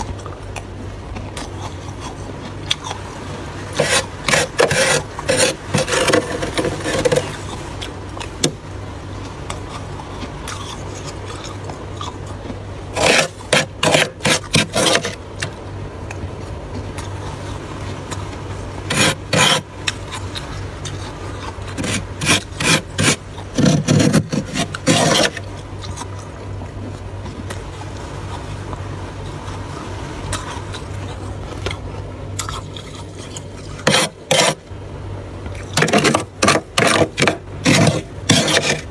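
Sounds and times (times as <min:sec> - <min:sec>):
steady low hum: 0:00.0 - 0:38.9
utensil scraping frost: 0:01.3 - 0:08.6, 0:09.2 - 0:15.5, 0:16.4 - 0:26.4, 0:32.4 - 0:34.6, 0:35.8 - 0:38.9.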